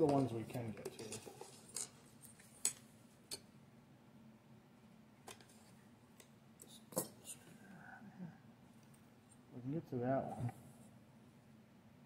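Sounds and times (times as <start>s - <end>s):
faint clicks of small parts: 0.0s - 3.5s, 5.2s - 7.5s, 8.7s - 9.4s.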